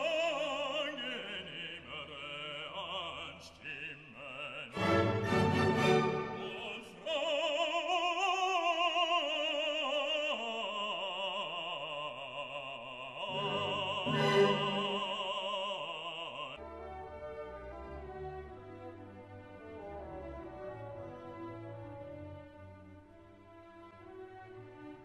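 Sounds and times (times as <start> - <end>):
operatic singing with vibrato: 0.0 - 16.7
classical music: 4.7 - 7.1, 13.3 - 15.7, 16.6 - 25.0.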